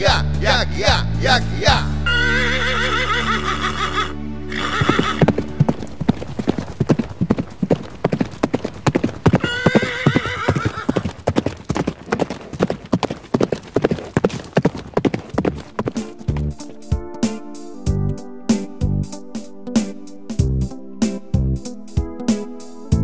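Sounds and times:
horse neighing: 0:02.1 - 0:05.4, 0:09.2 - 0:11.2
galloping horse hoofbeats: 0:04.5 - 0:17.0
accordion chord: 0:15.4 - 0:23.0.

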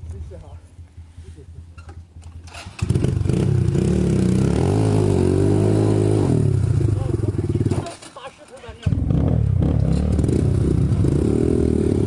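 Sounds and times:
dirt bike engine revving: 0:02.4 - 0:08.0, 0:08.8 - 0:12.0.

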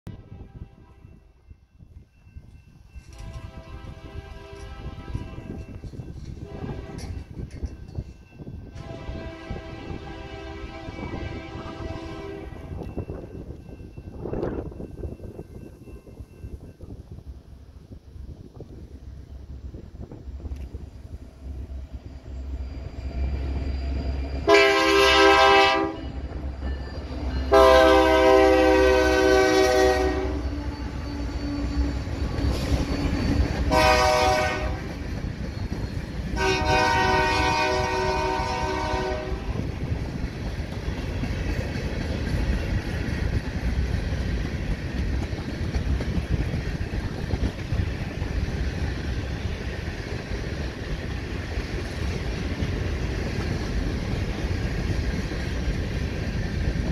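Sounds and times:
locomotive air horn blasts: 0:00.1 - 0:01.2, 0:03.2 - 0:05.8, 0:06.4 - 0:07.2, 0:08.7 - 0:12.8, 0:24.4 - 0:26.2, 0:27.5 - 0:30.4, 0:33.7 - 0:34.9, 0:36.4 - 0:39.6
train wheels clattering: 0:02.0 - 0:09.0, 0:22.8 - 0:56.9.

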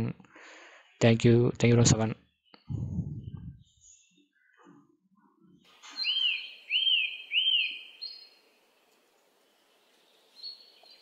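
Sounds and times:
bird-like chirps: 0:05.5 - 0:11.0.

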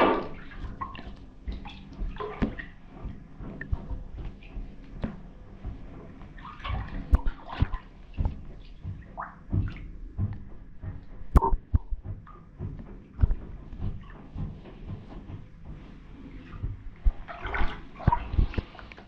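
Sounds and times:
boots splashing in water: 0:00.0 - 0:10.0, 0:10.6 - 0:19.0
sharp knocks: 0:11.3 - 0:12.2.

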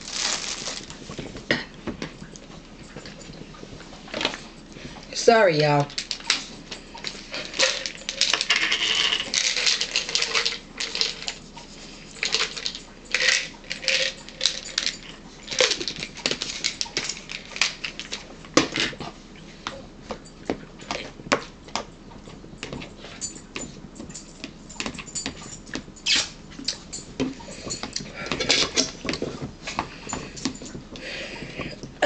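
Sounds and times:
wrapper crinkling: 0:00.0 - 0:01.2.

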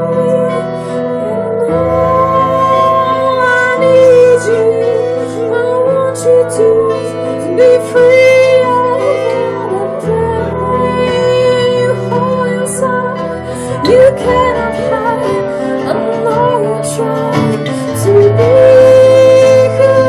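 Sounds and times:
guitar: 0:00.0 - 0:20.0
woman singing: 0:00.0 - 0:20.0.

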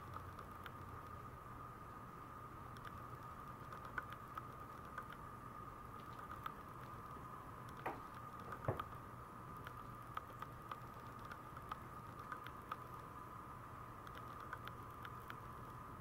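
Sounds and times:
puppy claws ticking on vinyl floor: 0:07.7 - 0:09.0.

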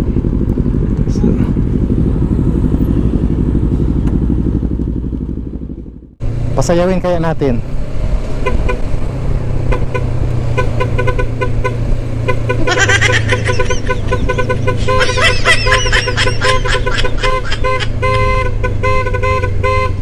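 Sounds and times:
motorcycle engine hum: 0:00.0 - 0:20.0
motorcycle horn tooting: 0:09.7 - 0:20.0.

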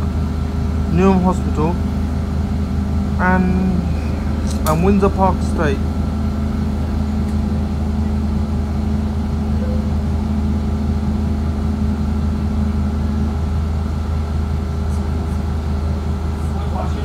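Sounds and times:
bus engine droning: 0:00.0 - 0:17.0.

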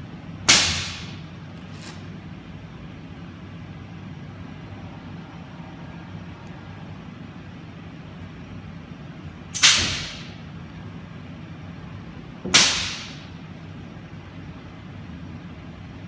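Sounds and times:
sharp compressed air hisses: 0:09.6 - 0:10.4.

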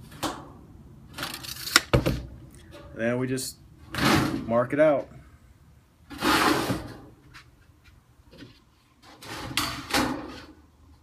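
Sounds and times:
metal duct scraping on concrete: 0:06.1 - 0:07.2.

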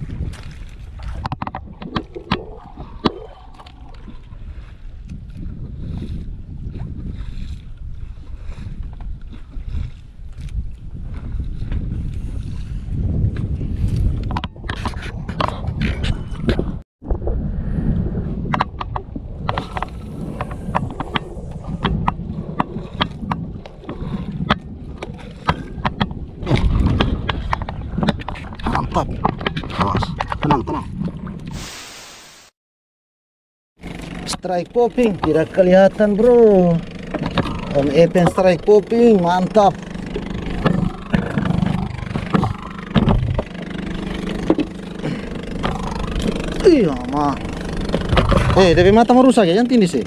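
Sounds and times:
low rumble of water: 0:00.0 - 0:31.8, 0:33.8 - 0:50.0
boat engine running: 0:18.2 - 0:31.5, 0:33.8 - 0:50.0.

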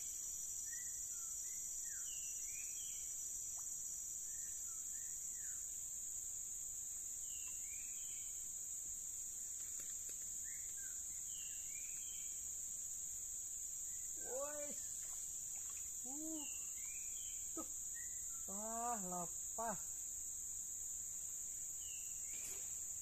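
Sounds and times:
high-pitched insect drone: 0:13.8 - 0:20.3.

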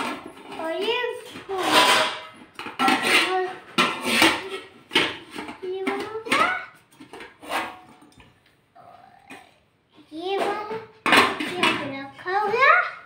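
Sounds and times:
metal utensils clinking on steel pots: 0:00.0 - 0:08.4.

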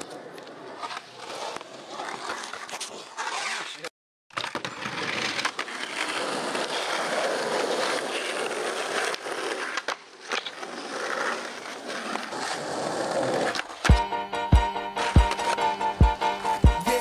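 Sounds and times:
skateboard wheels rolling on asphalt: 0:00.0 - 0:16.6.

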